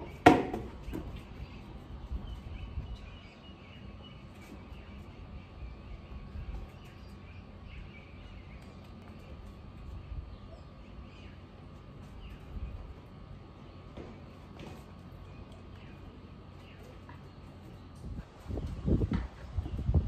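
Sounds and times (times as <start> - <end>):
birds chirping: 0.0 - 20.0
wind on microphone rumble: 18.0 - 20.0.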